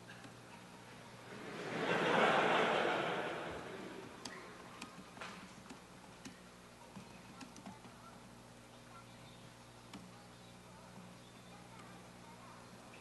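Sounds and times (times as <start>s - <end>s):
audience laughter: 1.3s - 4.1s.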